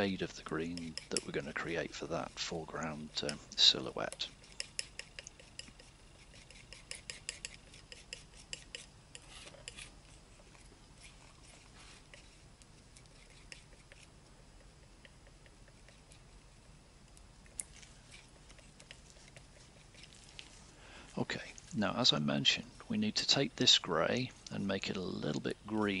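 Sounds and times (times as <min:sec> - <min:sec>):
palette knife scraping paint: 0:00.0 - 0:16.6, 0:17.5 - 0:20.6.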